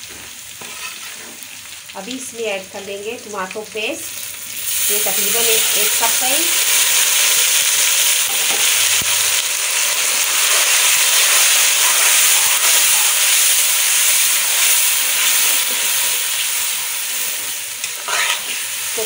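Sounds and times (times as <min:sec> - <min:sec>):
paste sizzling in hot oil: 0:00.0 - 0:19.0.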